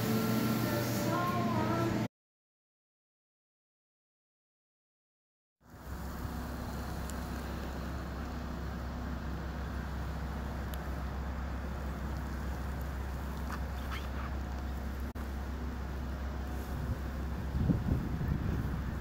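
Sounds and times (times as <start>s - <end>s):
city street traffic rumble: 5.6s - 19.0s
engine droning: 5.6s - 19.0s.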